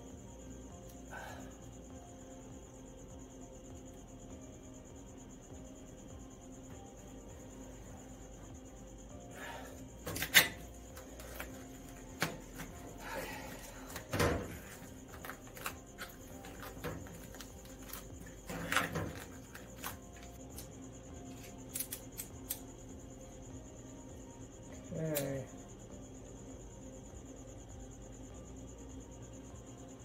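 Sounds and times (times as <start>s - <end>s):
crickets chirping: 0.0s - 30.0s
knife cutting vinyl: 15.4s - 20.0s.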